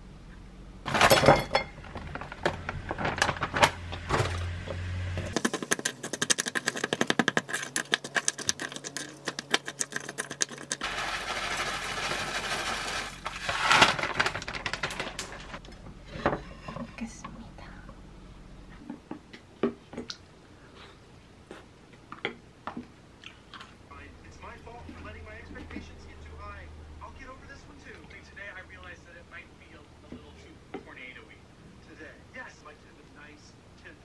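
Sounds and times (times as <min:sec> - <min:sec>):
spoon stirring and scraping bowl: 0:05.3 - 0:13.2
granola rattling: 0:05.3 - 0:15.6.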